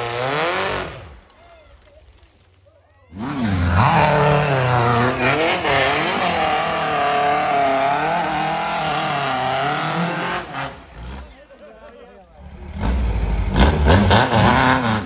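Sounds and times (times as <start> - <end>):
buggy engine revving hard: 0.0 - 1.1, 3.1 - 11.2, 12.4 - 15.0.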